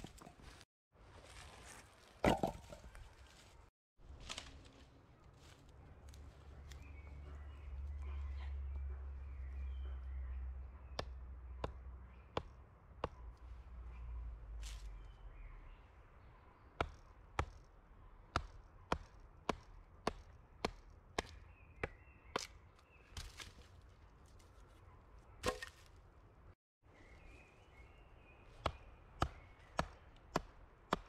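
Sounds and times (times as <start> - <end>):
axe chopping wood: 16.8 - 17.7, 18.3 - 22.6, 25.4 - 25.9, 28.6 - 31.0.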